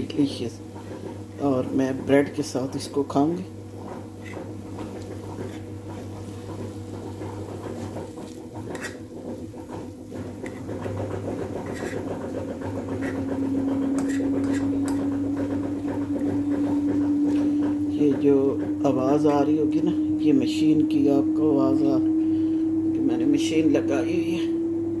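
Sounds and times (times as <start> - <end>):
household machine humming: 0.0 - 25.0
spatula scraping frying pan: 3.7 - 17.6.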